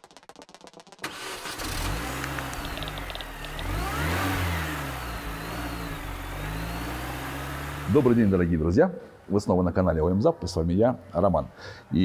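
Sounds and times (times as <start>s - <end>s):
car engine revving: 1.0s - 8.6s.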